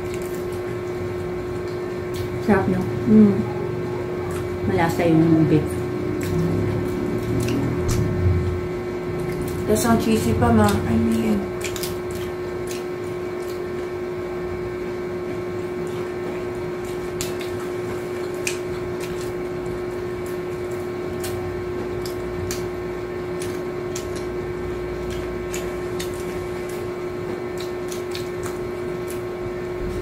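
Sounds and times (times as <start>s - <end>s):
crunching taco shells: 0.0s - 2.4s, 10.6s - 14.2s, 14.8s - 30.0s
steady machine hum: 0.0s - 30.0s.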